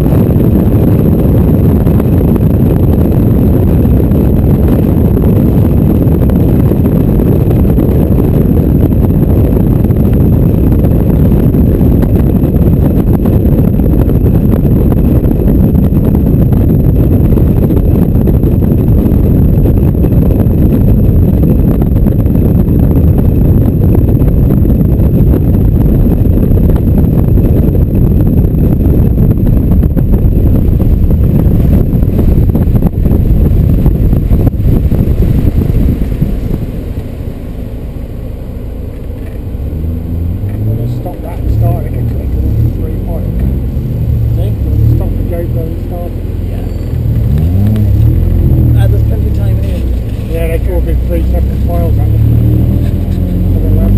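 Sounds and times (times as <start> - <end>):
road and engine noise: 0.0 - 53.9
wind buffeting: 0.0 - 53.9.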